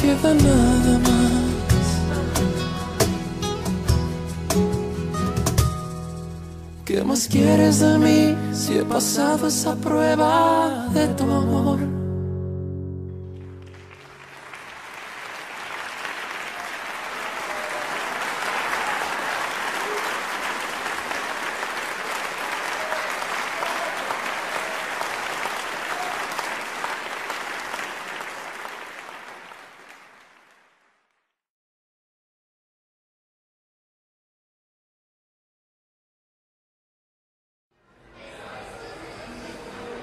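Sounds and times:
live song ending: 0.0 - 15.4
audience applause: 13.4 - 31.0.

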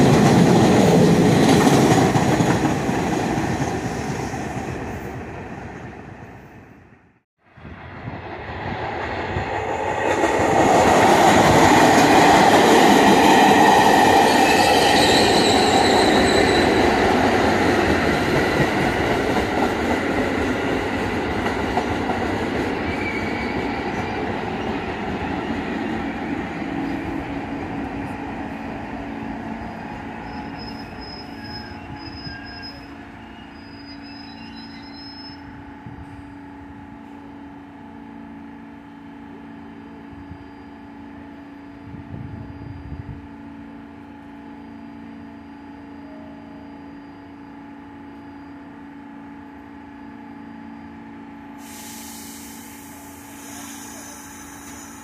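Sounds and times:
subway train rumbling on rails: 0.0 - 55.0
high squeal: 13.8 - 16.9, 22.8 - 24.1, 29.6 - 35.6, 51.8 - 55.0.

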